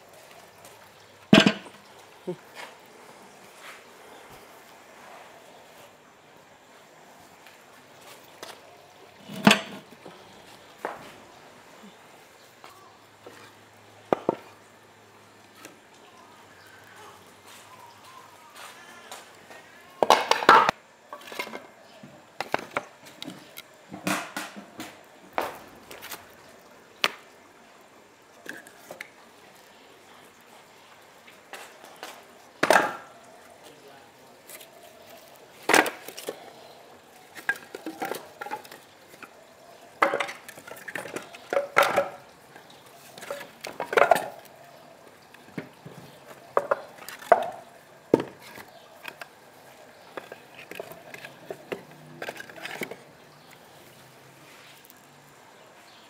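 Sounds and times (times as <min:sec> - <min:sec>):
kitchen utensils and dishes clattering: 0:01.3 - 0:01.9, 0:09.2 - 0:10.0, 0:20.0 - 0:21.8, 0:40.0 - 0:42.3.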